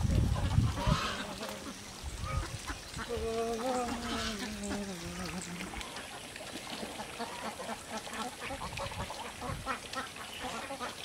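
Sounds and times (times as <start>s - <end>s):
flock of birds calling: 0.3s - 6.3s.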